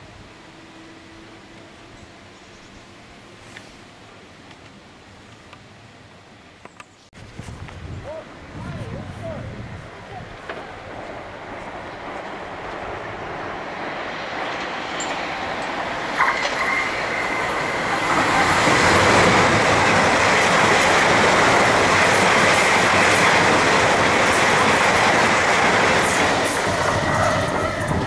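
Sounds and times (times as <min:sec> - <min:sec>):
high-pitched train whine: 0:00.0 - 0:03.4, 0:10.4 - 0:28.0
train wheel and rail noise: 0:00.0 - 0:28.0.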